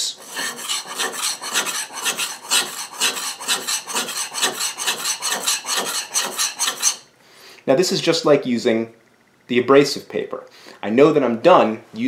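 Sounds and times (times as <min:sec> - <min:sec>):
plane iron scraping on oil stone: 0:00.0 - 0:07.0.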